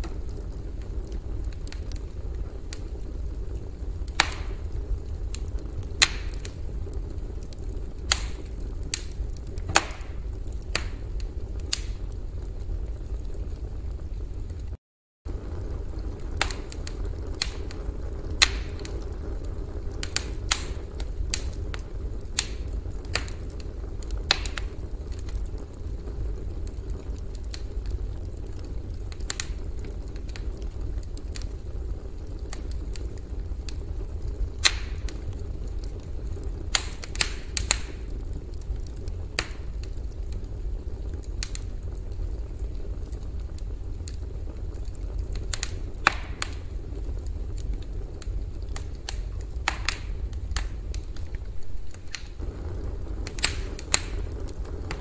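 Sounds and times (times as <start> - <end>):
low rumble: 0.0 - 27.0, 49.3 - 55.0
campfire crackling: 0.0 - 55.0.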